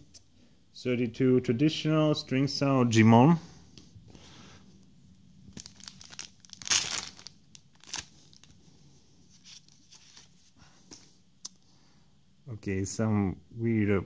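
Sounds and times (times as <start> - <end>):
wrapper crinkling: 5.5 - 8.6
foil pack tearing: 5.6 - 8.5.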